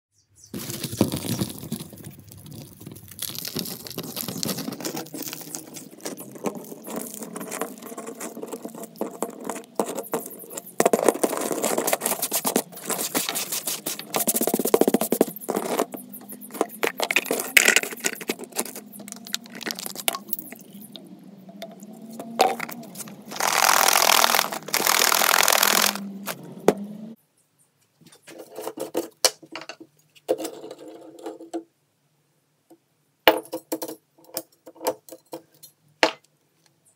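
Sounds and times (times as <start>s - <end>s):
crumbling rust rustling: 0.5s - 21.0s, 22.2s - 26.4s
steady noise: 8.8s - 27.2s.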